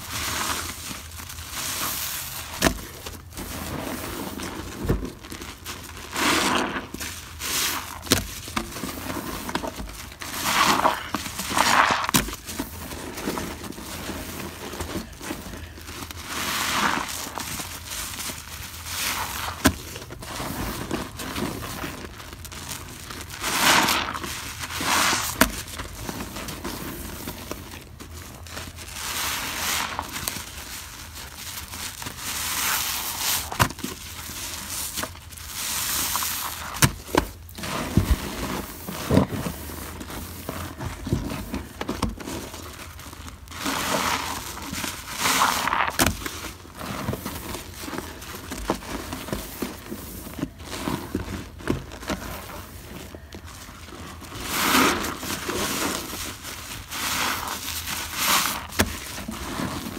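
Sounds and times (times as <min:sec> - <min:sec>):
sponges squishing in suds: 0:00.0 - 0:59.9.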